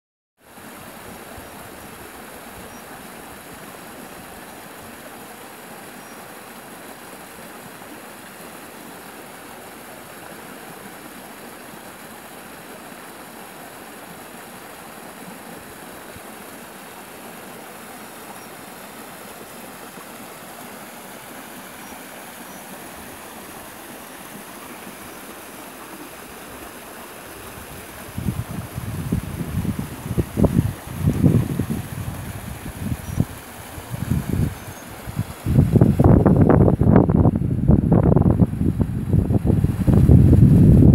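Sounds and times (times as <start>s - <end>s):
stream running over rocks: 0.4s - 40.9s.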